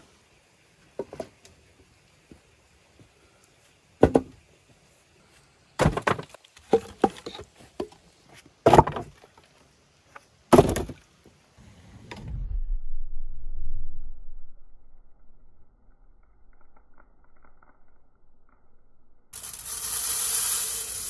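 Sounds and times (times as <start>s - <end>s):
logs knocking and clattering: 4.0s - 4.4s, 5.8s - 8.0s, 8.6s - 9.3s
low rumble: 11.6s - 19.3s.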